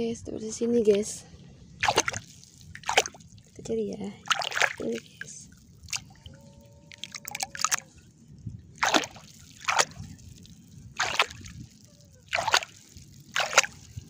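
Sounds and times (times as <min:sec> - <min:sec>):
hand splashing in shallow water: 0:01.8 - 0:03.3, 0:04.2 - 0:06.3, 0:06.9 - 0:07.9, 0:08.8 - 0:14.0.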